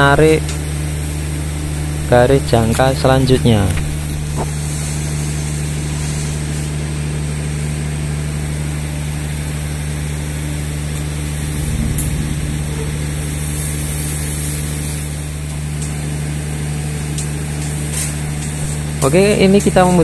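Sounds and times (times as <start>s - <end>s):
machine humming: 11.4s - 15.8s.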